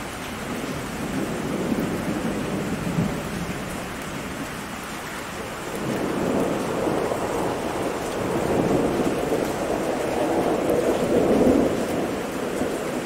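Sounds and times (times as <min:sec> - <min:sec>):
heavy rain: 0:00.0 - 0:13.0
rolling thunder: 0:05.7 - 0:13.0.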